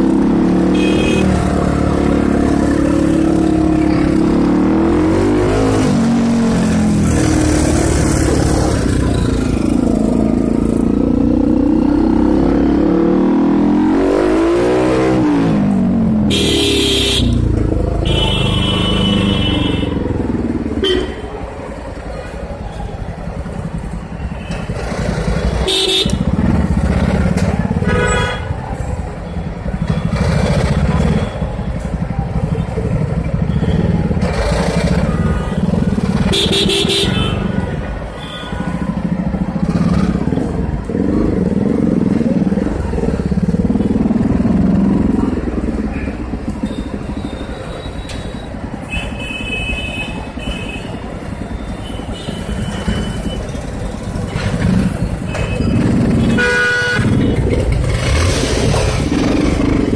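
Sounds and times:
vehicle horns honking: 0.6s - 1.4s, 16.2s - 20.0s, 20.7s - 21.3s, 25.5s - 26.4s, 27.8s - 28.6s, 34.8s - 38.9s, 55.2s - 57.6s
motorcycle engine running: 23.1s - 49.0s, 50.0s - 59.9s.

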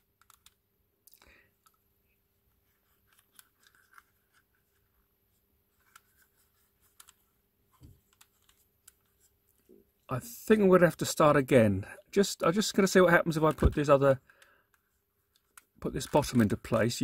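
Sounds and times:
puzzle clicks and scrapes: 2.8s - 4.8s.

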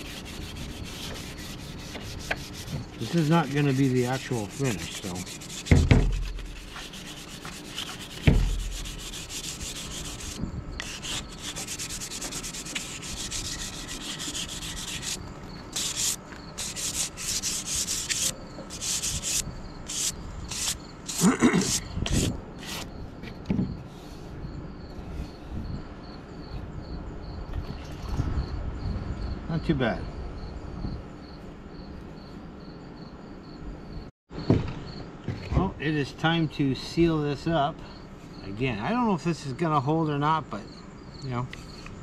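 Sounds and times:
sandpaper scratching wood: 0.0s - 22.9s.

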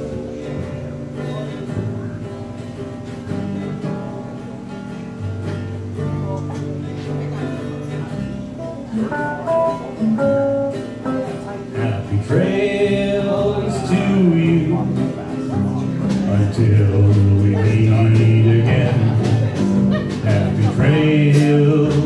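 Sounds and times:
acoustic guitar strumming: 0.0s - 22.0s
drums: 0.0s - 22.0s
upright bass: 0.0s - 22.0s
digital piano: 8.5s - 22.0s
man singing lead vocal: 11.8s - 15.2s, 16.0s - 22.0s.

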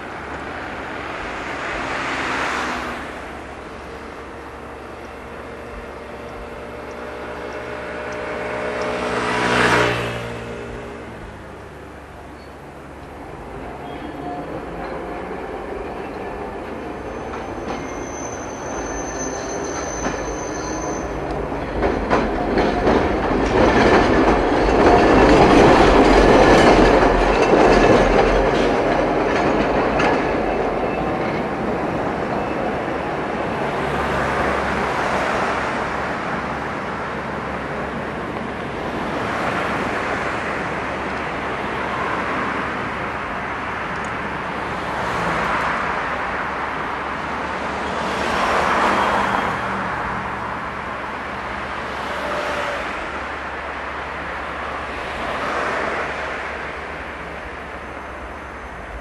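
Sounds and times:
tram wheels rumbling and clicking: 0.0s - 9.2s, 9.9s - 59.0s
road traffic rumble: 0.0s - 59.0s
tram wheel squeal: 12.2s - 35.4s, 51.8s - 53.3s.

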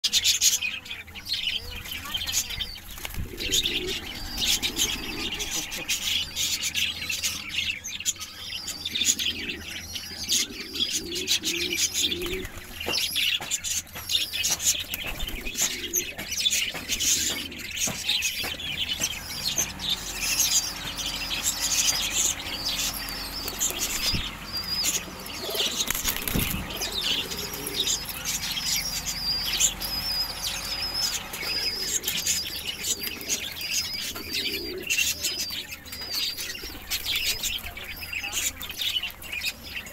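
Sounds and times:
pigeons cooing: 0.1s - 39.9s
pigeon wings flapping: 14.5s - 16.0s, 25.3s - 28.0s
high-pitched chirping: 18.6s - 35.3s.

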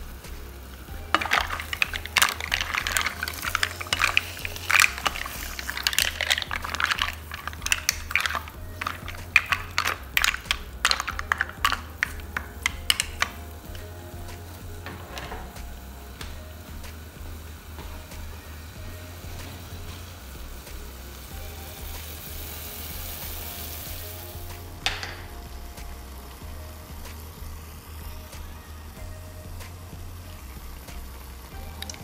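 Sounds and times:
mussel shells clattering in pot: 0.9s - 14.0s, 14.7s - 15.7s.

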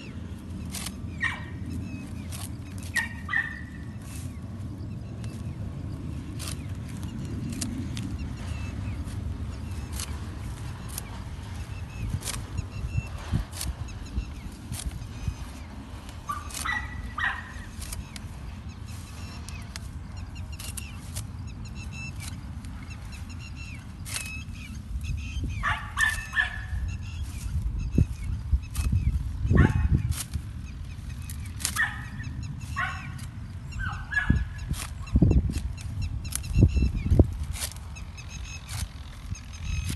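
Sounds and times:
stalks being snipped: 0.0s - 4.4s, 6.2s - 25.3s, 26.0s - 26.6s, 28.6s - 32.2s, 34.0s - 39.9s
leaves rustling: 0.0s - 39.9s
dog barking: 1.2s - 1.6s, 3.0s - 3.8s, 16.3s - 17.6s, 25.6s - 26.7s, 29.6s - 29.9s, 31.8s - 32.2s, 32.8s - 33.2s, 33.8s - 34.5s.

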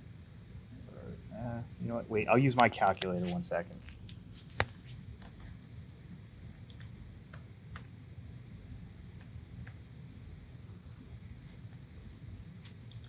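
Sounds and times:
faint low room hum: 0.0s - 13.0s
keyboard keystrokes: 6.6s - 7.9s, 12.8s - 13.0s.

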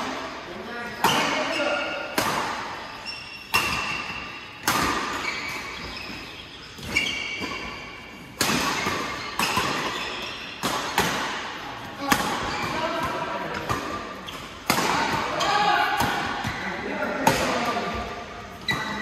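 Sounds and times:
rackets striking shuttlecock: 6.8s - 16.5s.

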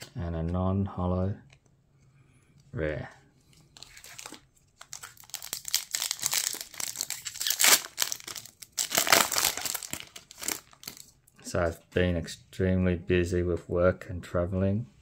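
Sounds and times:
foil wrapper crinkling: 3.8s - 11.2s.

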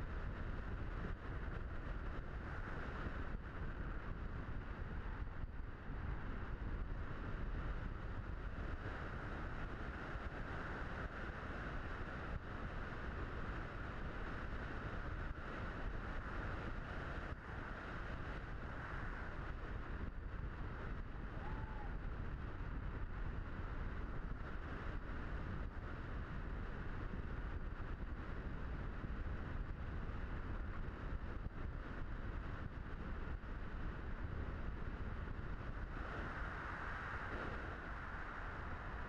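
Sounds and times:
wind rushing past plane: 12.1s - 39.0s.

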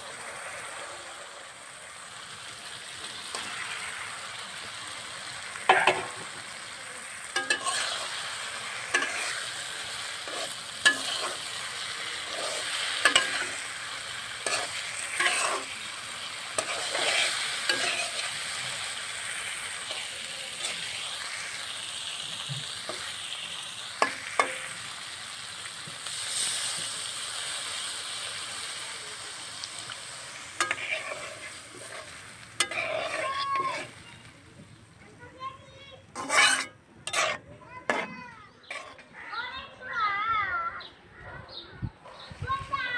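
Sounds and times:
fish frying in oil: 0.0s - 34.8s
metal spatula scraping wok: 3.0s - 6.4s, 7.0s - 25.0s, 30.2s - 34.4s, 36.1s - 39.3s.

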